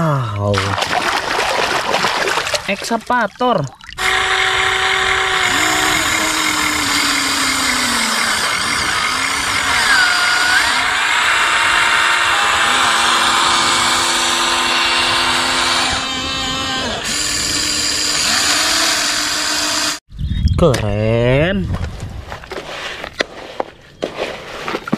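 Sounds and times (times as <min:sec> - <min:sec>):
toy excavator motors whining: 0:04.0 - 0:20.0.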